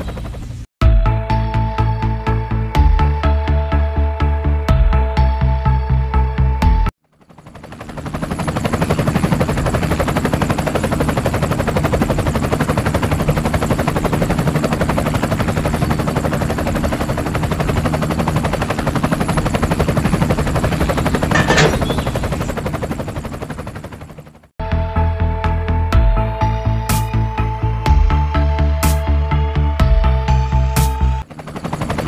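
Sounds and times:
toy helicopter rotor rattling: 14.9 - 23.2.

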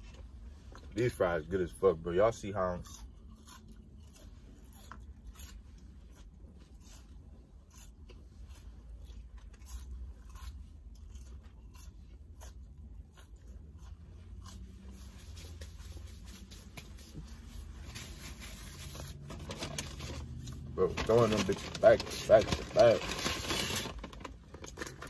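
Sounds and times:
chewing crunchy food: 0.0 - 17.2.

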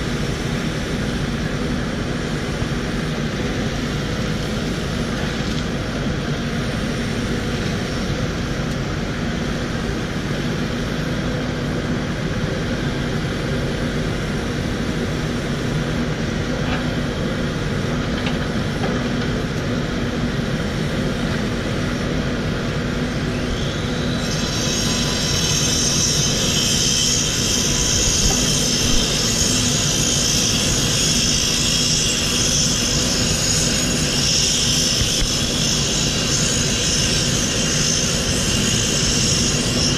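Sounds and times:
excavator diesel engine running: 0.0 - 39.9
high-pitched whine: 0.0 - 39.9.

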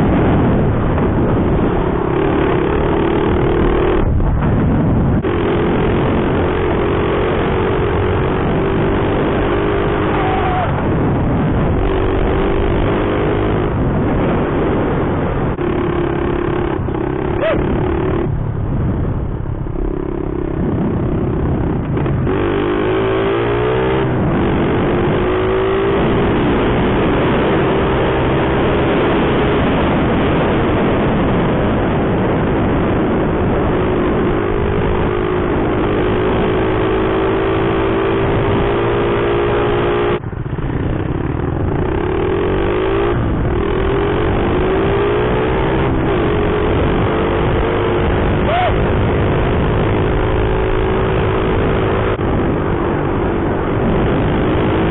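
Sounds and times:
wind noise: 0.0 - 54.9
small motorbike engine running: 5.2 - 13.8, 15.4 - 18.5.

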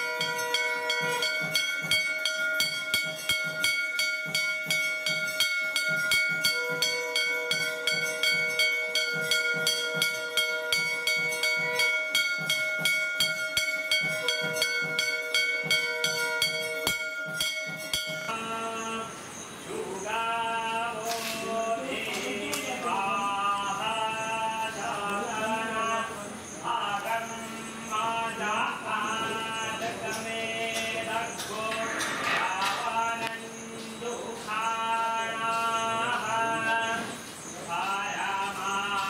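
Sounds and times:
temple bells ringing rapidly: 0.0 - 19.2.

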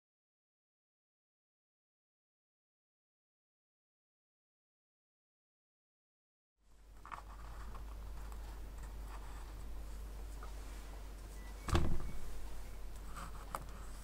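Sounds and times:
steady low hum: 6.6 - 14.0
dull thump: 11.7 - 12.5.

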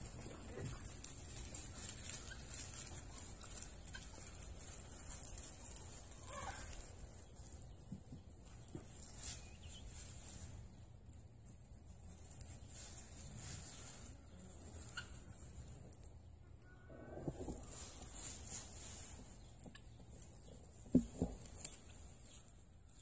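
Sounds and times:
chickens clucking: 0.0 - 10.9, 11.6 - 23.0.

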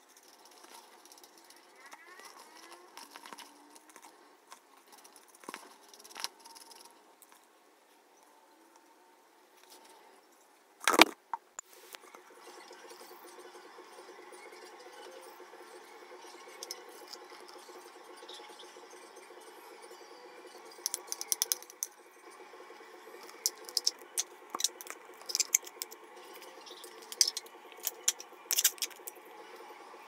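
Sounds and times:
papier-mache shell crackling: 23.3 - 26.0, 27.0 - 29.2.

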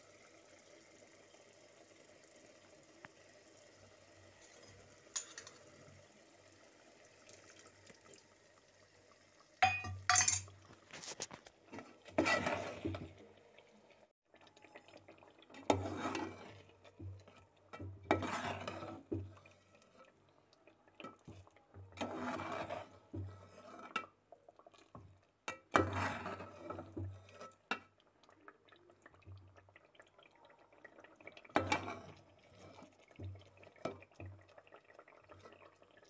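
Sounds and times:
spoon clinking against pot: 4.4 - 5.7, 9.6 - 10.5
spoon scraping thick curry: 12.1 - 12.8, 18.1 - 19.1, 22.0 - 23.9, 25.8 - 27.4.

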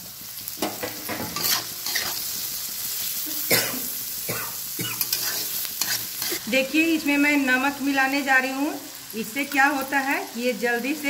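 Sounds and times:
onion and potato frying in oil: 0.0 - 11.0
metal spatula scraping a pan: 0.6 - 2.3, 5.0 - 6.5.

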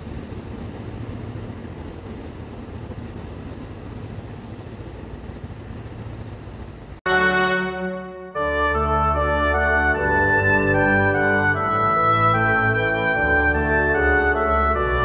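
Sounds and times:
electric train rumbling: 0.0 - 15.0
loud brass music: 7.1 - 15.0.

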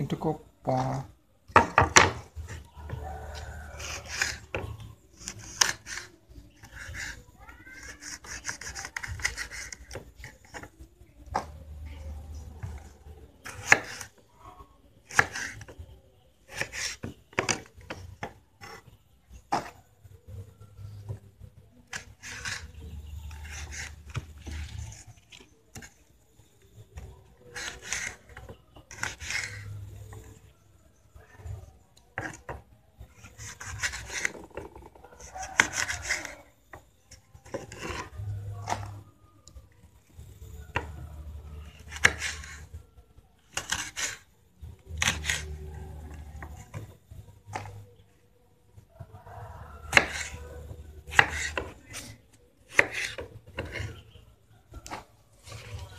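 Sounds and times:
knife slicing on wooden board: 49.9 - 50.4, 51.1 - 53.9.

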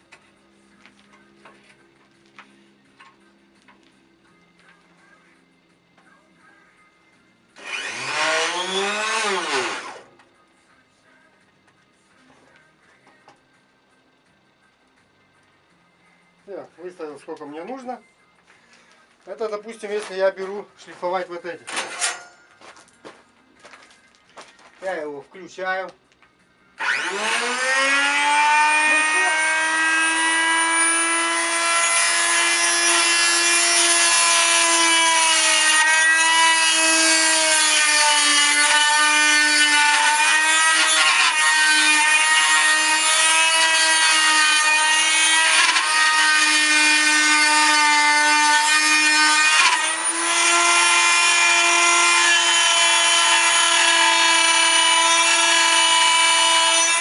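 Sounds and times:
grinder motor whining: 7.6 - 10.1, 26.8 - 57.0
metal pieces grinding: 21.7 - 22.5.

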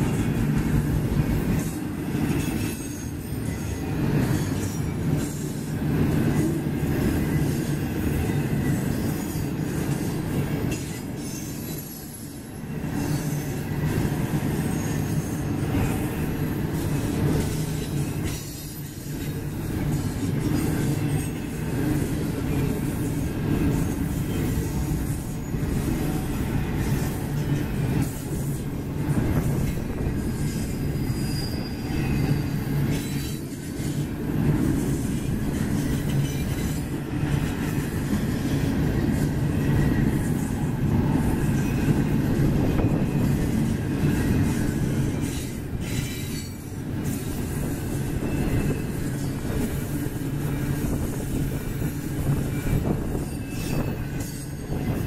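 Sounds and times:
steel wheels rumbling on rail: 0.0 - 55.0
high-pitched wheel squeals: 30.2 - 33.6, 52.4 - 55.0.

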